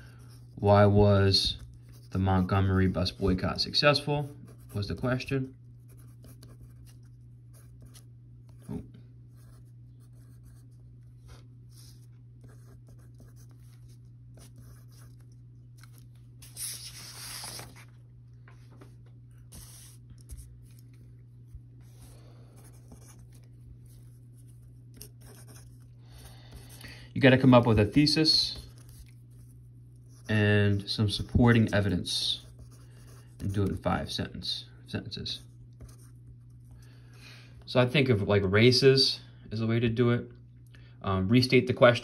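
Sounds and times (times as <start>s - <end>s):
steady low hum: 0.0s - 42.0s
pencil scratching on paper: 4.4s - 5.2s, 5.8s - 15.3s, 19.5s - 20.8s, 21.8s - 25.9s, 28.5s - 33.8s, 35.4s - 36.7s
paper rustle: 15.2s - 21.0s.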